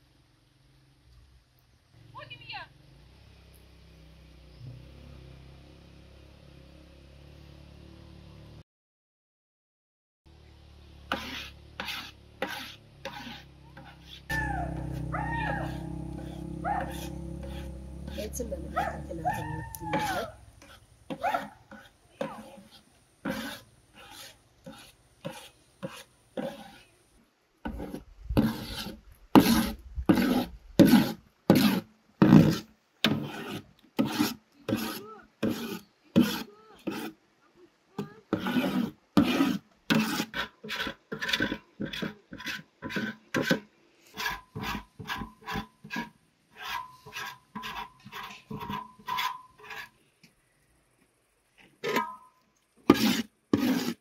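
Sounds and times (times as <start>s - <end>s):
metal ladle scraping a pot: 11.1s - 26.9s, 27.7s - 37.1s, 38.3s - 50.0s, 51.8s - 54.0s.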